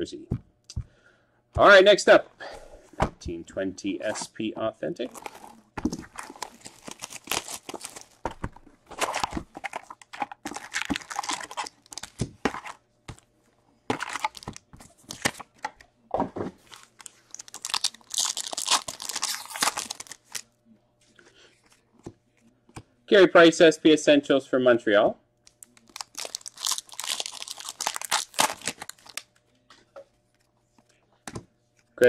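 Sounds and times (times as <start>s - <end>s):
plastic wrap tearing and crinkling: 5.1s - 12.8s, 13.9s - 15.5s, 16.6s - 20.4s, 25.6s - 29.3s.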